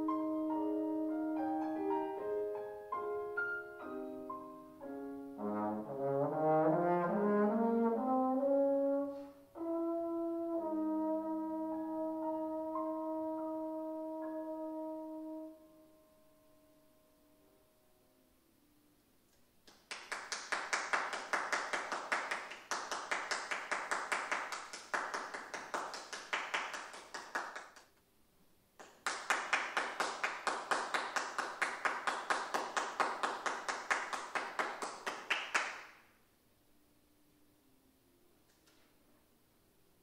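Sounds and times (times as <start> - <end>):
audience applause: 19.9 - 27.7.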